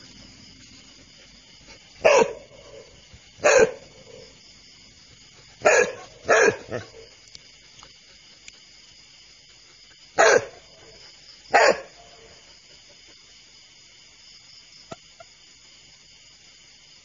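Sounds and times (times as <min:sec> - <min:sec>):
night insects chirring: 0:00.0 - 0:17.0
dog barks: 0:02.0 - 0:04.4, 0:05.5 - 0:07.2, 0:10.2 - 0:12.4.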